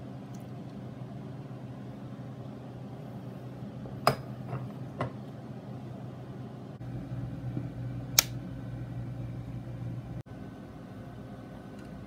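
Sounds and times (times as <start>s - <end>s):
low steady hum: 0.0s - 12.0s
power switch click: 8.1s - 8.4s.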